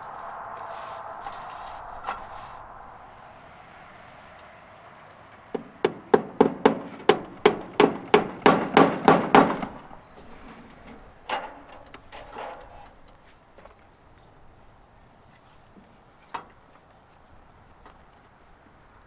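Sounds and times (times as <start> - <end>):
hammer nailing into wood: 5.6 - 9.8.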